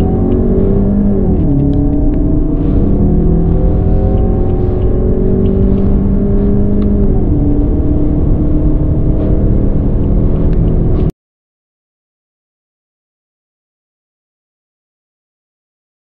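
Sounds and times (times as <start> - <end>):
car engine accelerating: 0.0 - 11.1.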